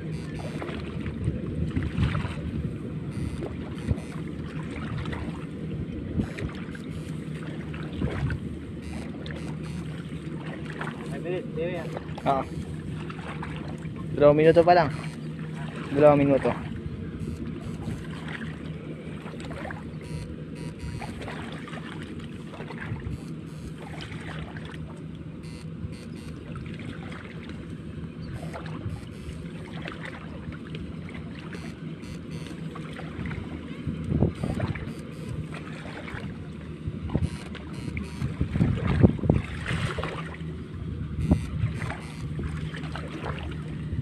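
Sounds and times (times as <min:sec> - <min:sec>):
wind on microphone: 0:00.0 - 0:07.2, 0:07.8 - 0:09.9, 0:33.2 - 0:42.7
low motor hum: 0:00.0 - 0:44.0
short knocks or splashes: 0:37.1 - 0:40.4.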